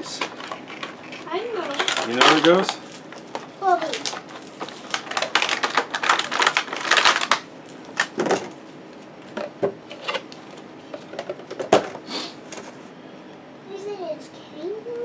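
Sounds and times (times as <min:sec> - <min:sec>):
packaging crinkling and clicking: 0:00.1 - 0:11.8.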